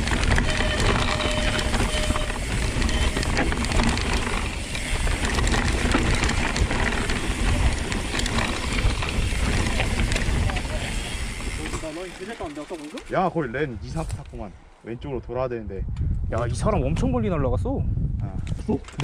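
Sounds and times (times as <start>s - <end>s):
wind rumbling on camera: 0.0s - 11.9s, 13.4s - 19.0s
bike freehub ratcheting: 0.0s - 13.2s
bike rattling over stones: 0.0s - 14.3s.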